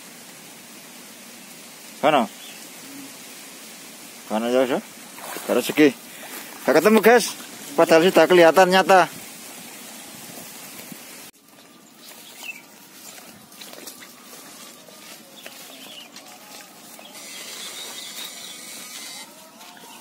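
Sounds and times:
grass and brush rustling underfoot: 0:00.0 - 0:20.0
faint bird calls: 0:15.0 - 0:19.2.

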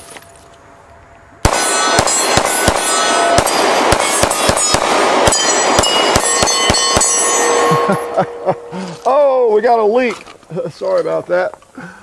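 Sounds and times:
pistol firing rapid shots: 0:01.4 - 0:07.9
steel targets ringing: 0:01.4 - 0:09.4.

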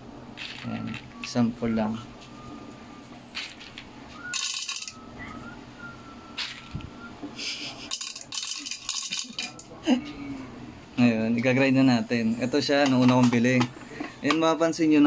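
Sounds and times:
coffee beans rattling: 0:00.4 - 0:01.4, 0:03.4 - 0:05.0, 0:06.4 - 0:06.8, 0:07.8 - 0:09.6.

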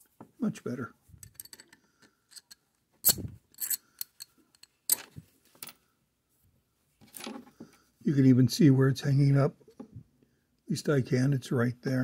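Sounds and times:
metal bearing clicks and scrapes: 0:01.2 - 0:05.8.

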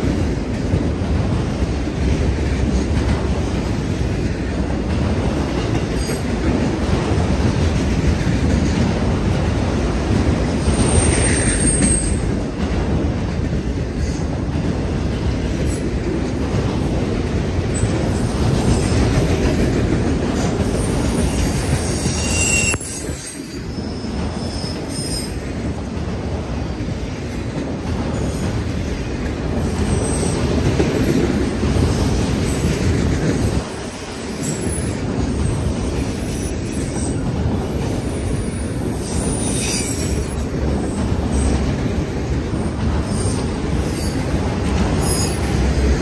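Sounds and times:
train wheels rumbling on rail: 0:00.0 - 0:46.0
high-pitched wheel squeals: 0:21.8 - 0:25.4, 0:39.2 - 0:40.4.

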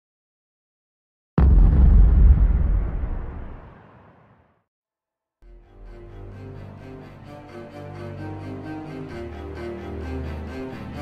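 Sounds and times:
film music with deep notes: 0:05.5 - 0:11.0.

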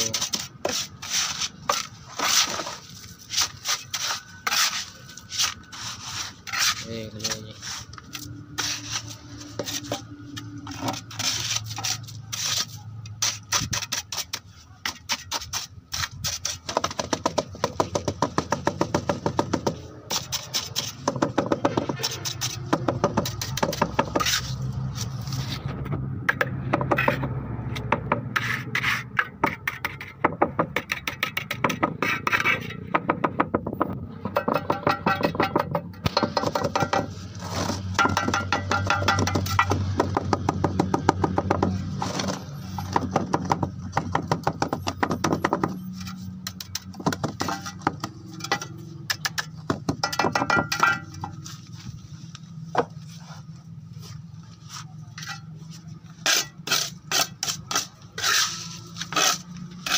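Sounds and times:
metal trowel scraping wet concrete: 0:00.0 - 0:16.8, 0:19.8 - 0:32.9, 0:54.8 - 0:59.9
trowel tapping concrete: 0:38.0 - 0:41.8.

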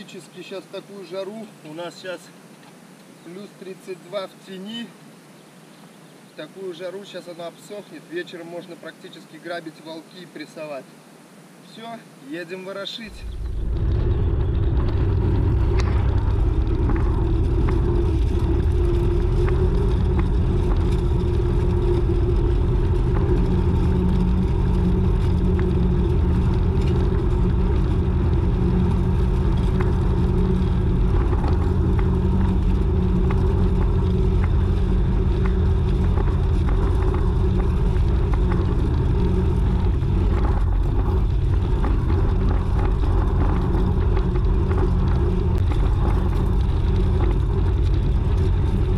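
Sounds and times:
tractor diesel engine running: 0:13.2 - 0:48.9.

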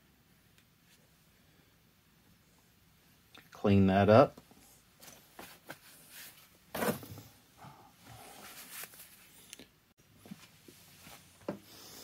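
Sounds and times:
faint handling noises: 0:04.3 - 0:07.2, 0:08.0 - 0:11.8
cloth rustling while wiping: 0:05.0 - 0:07.0, 0:08.2 - 0:09.4, 0:10.2 - 0:11.5.

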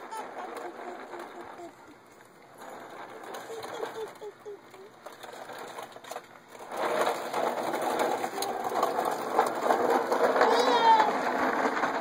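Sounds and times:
plastic wheels rattling over concrete: 0:00.0 - 0:12.0.

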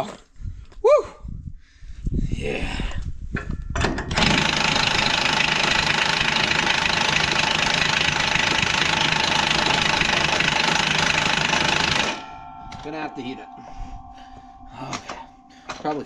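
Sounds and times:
power tool running: 0:04.1 - 0:12.3.

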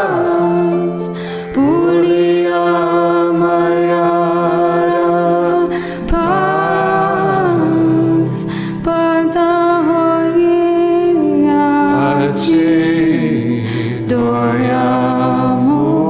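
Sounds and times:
steady musical drone: 0:00.0 - 0:09.6
person singing long notes: 0:00.0 - 0:16.0.

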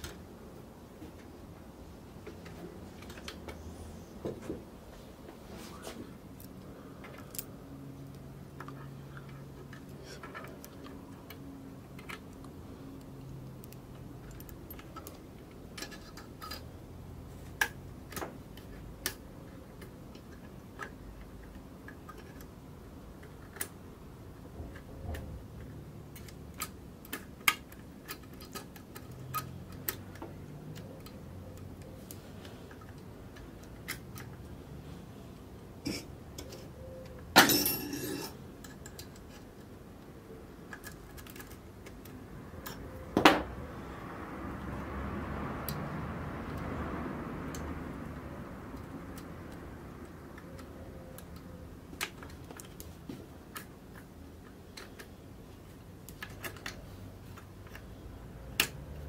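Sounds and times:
small metal clicks and taps: 0:06.4 - 0:16.7, 0:17.4 - 0:34.5, 0:37.9 - 0:39.8, 0:40.6 - 0:43.0, 0:48.7 - 0:59.0.

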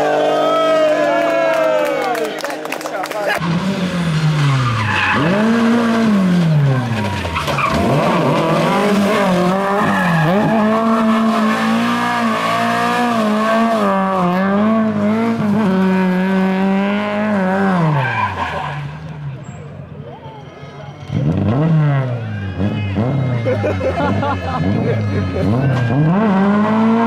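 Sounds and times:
car engine revving hard: 0:03.4 - 0:18.8, 0:21.1 - 0:27.0
tyres scrabbling over loose dirt: 0:06.4 - 0:10.7.

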